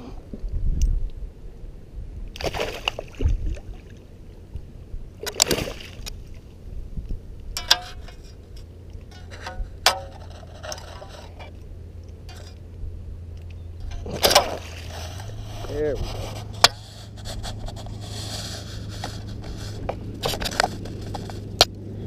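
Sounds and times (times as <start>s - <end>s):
fish splashing in water: 2.4s - 4.0s, 5.2s - 6.4s, 14.0s - 15.2s.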